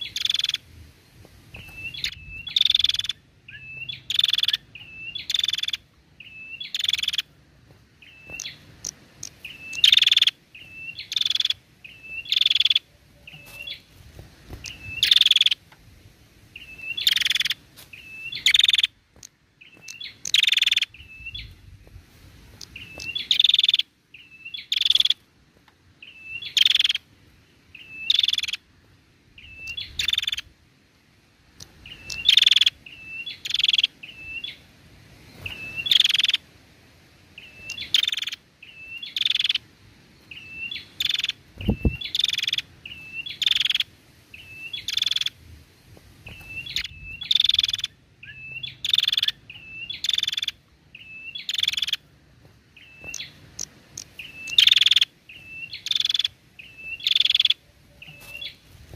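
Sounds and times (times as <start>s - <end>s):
bird calling harshly: 0.0s - 0.7s, 1.6s - 7.4s, 8.0s - 13.9s, 14.5s - 15.6s, 16.6s - 21.6s, 22.6s - 25.2s, 26.0s - 27.1s, 27.7s - 28.7s, 29.4s - 30.5s, 35.4s - 36.4s, 37.4s - 39.7s, 40.3s - 45.4s, 46.3s - 52.1s, 52.8s - 58.6s.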